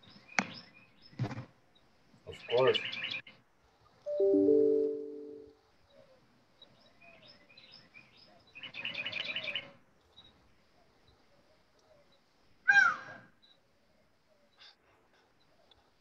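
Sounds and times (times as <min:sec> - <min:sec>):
small birds chirping: 0:00.0 - 0:04.0, 0:05.7 - 0:16.0
bird trill of high notes: 0:04.1 - 0:05.5.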